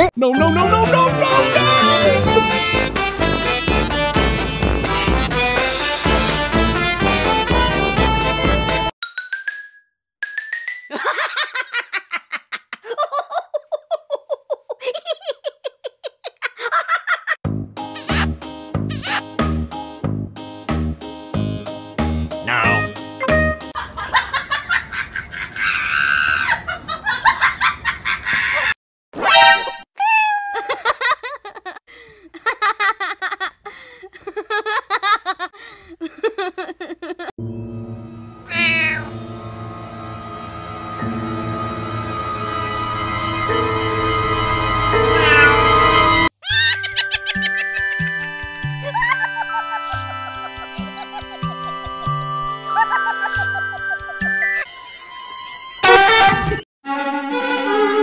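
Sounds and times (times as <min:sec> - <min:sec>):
person laughing: 0:00.7 - 0:02.5, 0:10.9 - 0:17.4, 0:18.0 - 0:18.3, 0:18.9 - 0:19.3, 0:23.8 - 0:28.8, 0:30.3 - 0:37.3, 0:46.4 - 0:54.6
person giggling: 0:10.9 - 0:17.4, 0:30.4 - 0:37.3, 0:46.4 - 0:48.1, 0:48.8 - 0:54.4.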